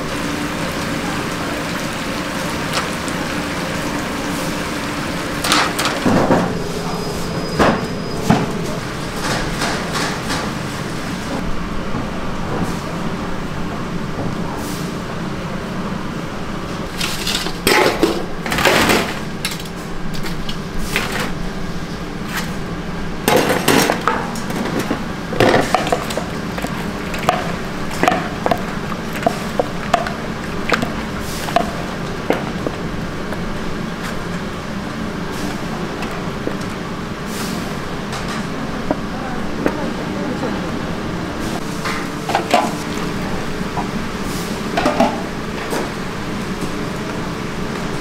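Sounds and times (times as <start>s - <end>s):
kitchen equipment humming: 0.0s - 14.3s, 15.1s - 48.0s
metal cookware clattering and scraping: 23.3s - 32.7s.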